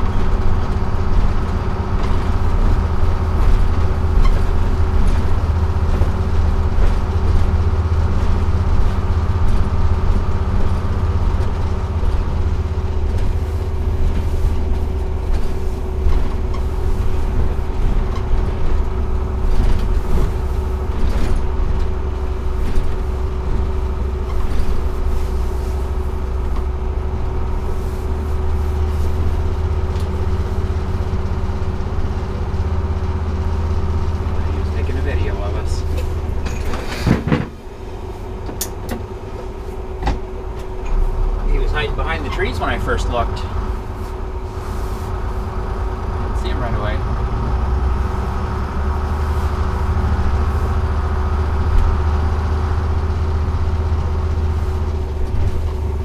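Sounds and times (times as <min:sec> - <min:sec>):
diesel bus engine running: 0:00.0 - 0:56.0
road noise: 0:00.0 - 0:56.0
body rattles: 0:02.0 - 0:31.3.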